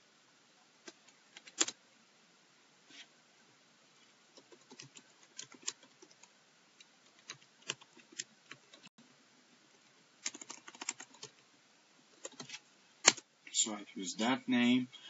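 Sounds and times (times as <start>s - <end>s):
computer keyboard keystrokes: 0.9s - 1.8s, 4.4s - 6.3s, 7.2s - 8.9s, 10.2s - 11.3s, 12.2s - 13.2s.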